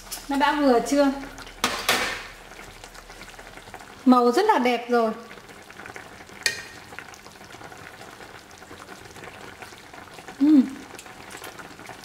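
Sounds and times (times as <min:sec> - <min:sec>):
liquid boiling in a pot: 0:00.0 - 0:12.0
person humming: 0:10.4 - 0:10.9.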